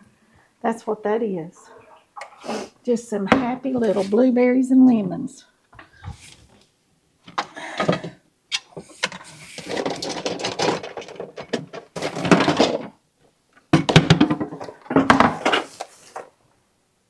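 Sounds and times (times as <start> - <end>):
plastic food processor parts clattering: 9.0 - 13.0.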